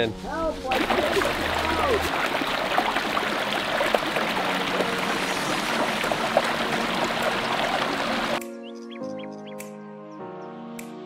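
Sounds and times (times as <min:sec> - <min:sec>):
water splashing over rocks: 0:00.7 - 0:08.4.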